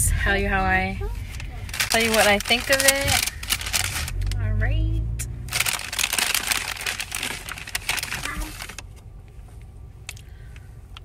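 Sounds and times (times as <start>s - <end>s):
paper wrapping crinkling: 1.4s - 4.4s, 5.5s - 9.0s.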